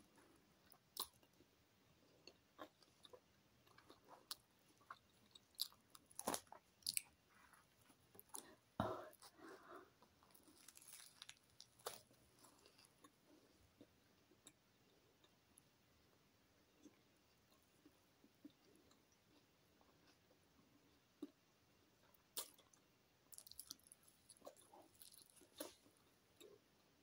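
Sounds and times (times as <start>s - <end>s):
chewing and crunching: 2.0s - 8.6s, 10.0s - 14.6s, 22.0s - 27.0s.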